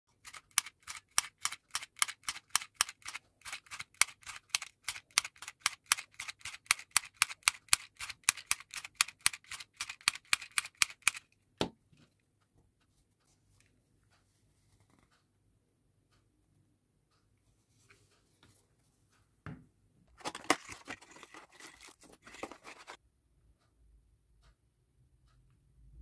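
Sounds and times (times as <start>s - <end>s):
hand sewing machine clicking: 0.1s - 11.3s.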